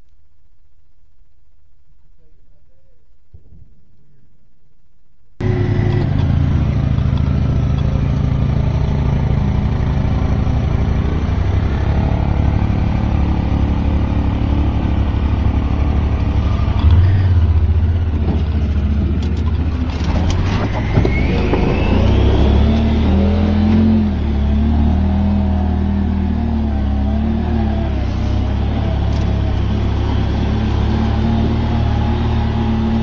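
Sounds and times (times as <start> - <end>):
boat motor running: 5.4 - 24.6.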